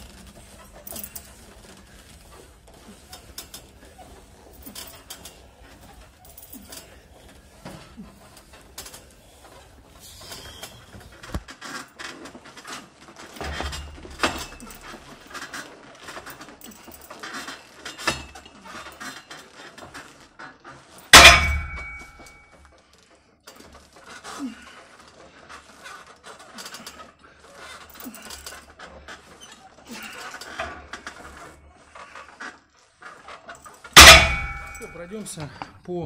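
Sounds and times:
metal gym equipment clattering: 0:00.0 - 0:22.6, 0:23.5 - 0:35.5
loud metallic clang: 0:21.2 - 0:22.4, 0:34.0 - 0:35.0.

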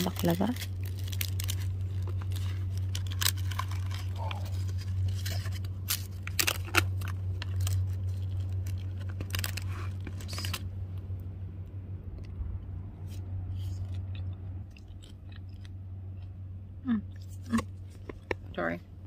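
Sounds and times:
steady low hum: 0:00.0 - 0:19.0
fork crunching flaky pastry: 0:00.2 - 0:10.7, 0:13.0 - 0:16.3.

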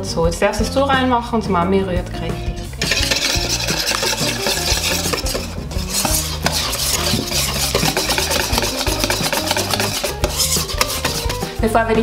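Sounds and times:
whisk beating batter in metal bowl: 0:02.8 - 0:11.6.

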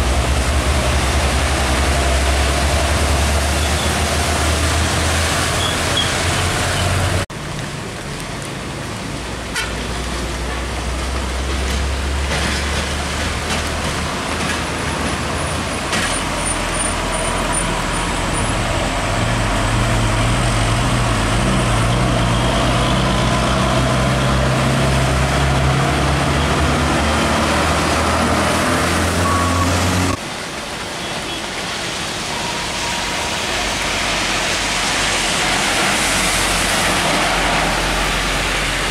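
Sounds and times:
tyres hissing on wet road: 0:00.0 - 0:38.9
truck engine drone: 0:16.5 - 0:30.3.

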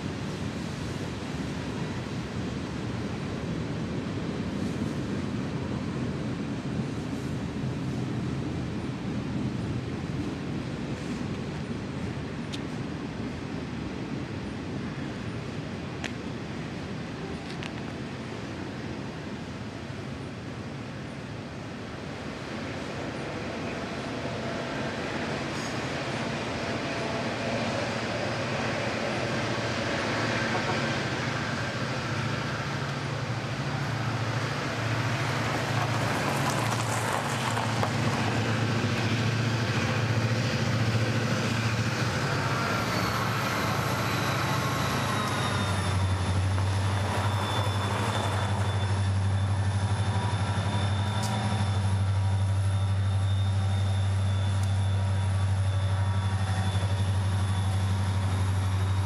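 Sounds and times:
diesel locomotive engine drone: 0:00.0 - 0:59.0.

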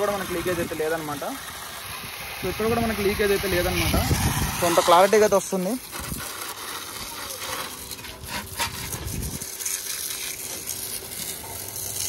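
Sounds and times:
pump humming: 0:00.0 - 0:12.0
water spraying: 0:00.0 - 0:12.0.

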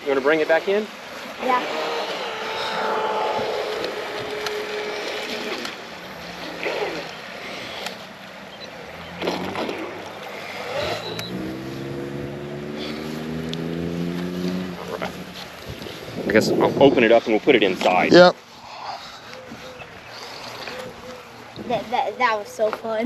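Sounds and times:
rc boat motor hum: 0:00.0 - 0:23.0
water swishes: 0:00.0 - 0:23.0.

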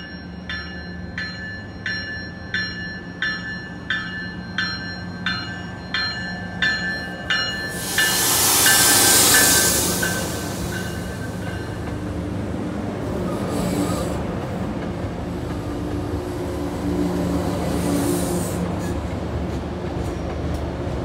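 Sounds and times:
train bell ringing: 0:00.0 - 0:12.0
rush of train passing: 0:03.2 - 0:21.0.

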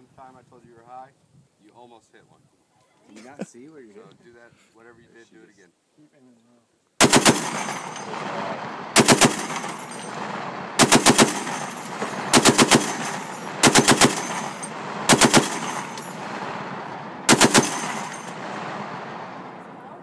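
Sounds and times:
machine gun firing bursts: 0:07.0 - 0:19.7.

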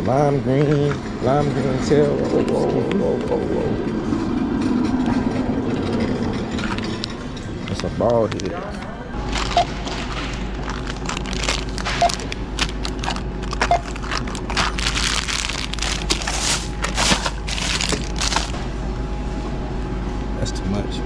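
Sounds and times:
plastic packaging crinkling: 0:09.2 - 0:18.6
barcode scanner beeps: 0:09.5 - 0:09.9, 0:11.9 - 0:12.3, 0:13.6 - 0:14.0.

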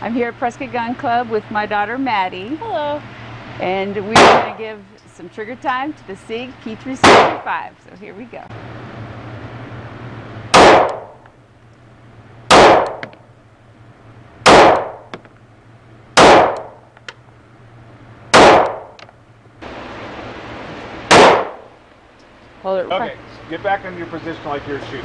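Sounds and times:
pistol shots echoing indoors: 0:10.5 - 0:11.2, 0:12.5 - 0:13.1, 0:14.4 - 0:15.1, 0:16.2 - 0:16.8, 0:18.3 - 0:19.0, 0:21.1 - 0:21.7.

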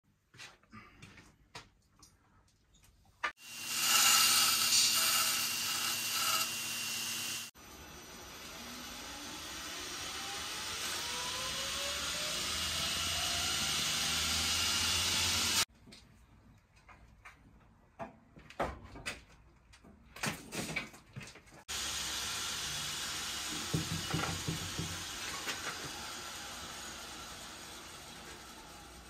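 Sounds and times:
belt grinder running: 0:03.4 - 0:15.7, 0:21.7 - 0:29.0
grinder whines: 0:03.4 - 0:15.7, 0:21.7 - 0:29.0.

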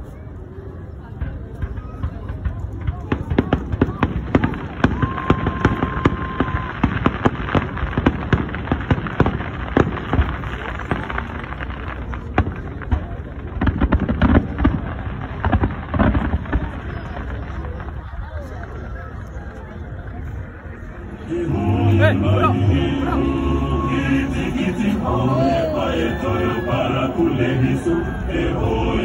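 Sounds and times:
fireworks bangs and crackles: 0:00.7 - 0:29.0
firework whistle: 0:04.8 - 0:07.1, 0:23.6 - 0:28.7.

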